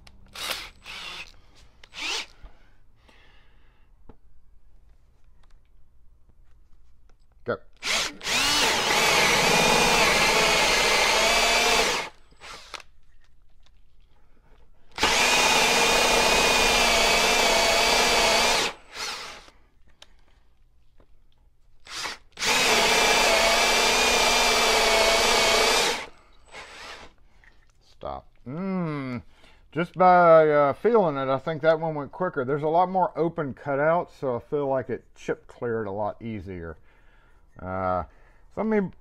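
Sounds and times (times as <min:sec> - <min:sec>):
drill with hole saw cutting wood: 0:00.3 - 0:01.3, 0:01.9 - 0:02.4, 0:07.8 - 0:12.8, 0:14.9 - 0:19.5, 0:21.9 - 0:27.2
brief drill blips: 0:07.8 - 0:12.7.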